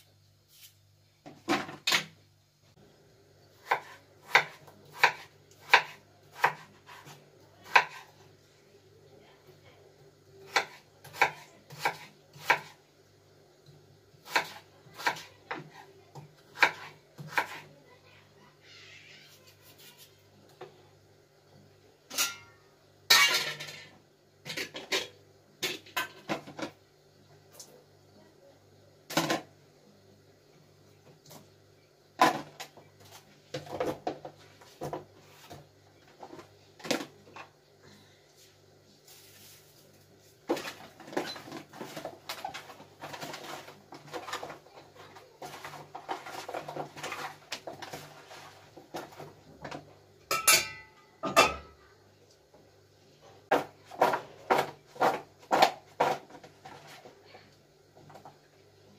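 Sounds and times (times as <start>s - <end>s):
knife chopping on wooden board: 3.6s - 8.0s
knife cutting potatoes on board: 3.6s - 8.2s, 10.4s - 12.8s, 14.2s - 17.8s, 53.5s - 56.9s.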